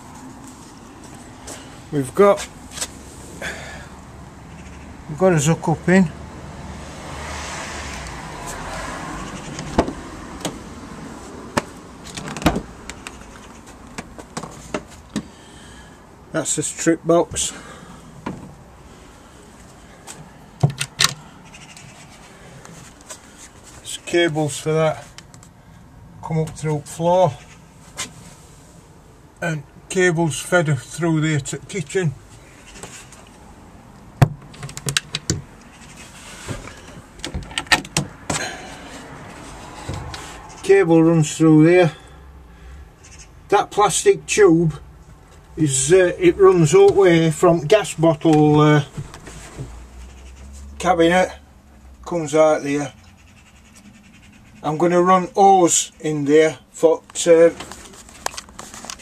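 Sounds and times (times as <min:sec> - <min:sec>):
van door clicks and knocks: 0:09.6 - 0:10.6, 0:11.6 - 0:12.7, 0:20.6 - 0:21.2, 0:37.2 - 0:38.4
clicks and knocks on panels: 0:20.6 - 0:21.2, 0:36.5 - 0:38.5.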